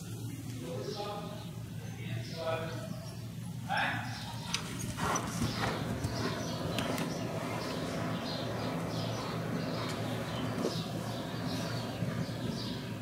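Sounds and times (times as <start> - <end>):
low hum: 2.7 - 13.0
horse hoofbeats on soft ground: 4.5 - 13.0.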